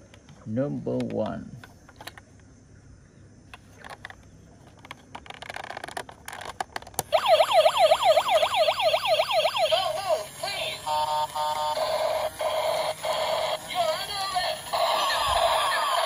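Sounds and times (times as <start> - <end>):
plastic toy handling clicks: 1.0 - 2.3, 3.5 - 7.1
toy electronic siren wailing: 7.1 - 16.0.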